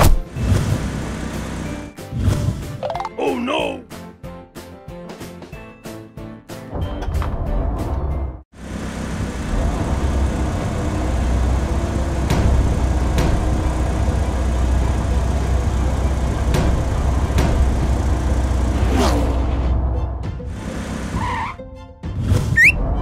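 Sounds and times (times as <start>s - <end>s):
large vehicle engine droning: 0.2s - 2.1s, 7.8s - 21.6s.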